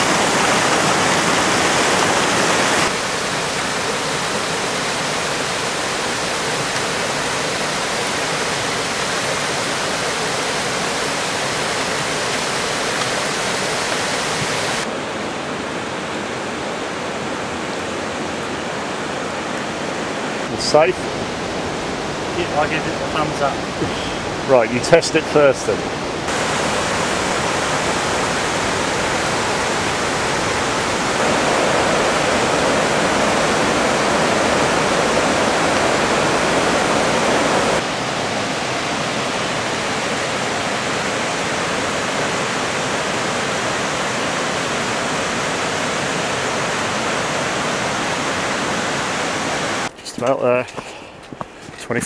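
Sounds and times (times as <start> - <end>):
white water rushing: 0.0 - 50.7.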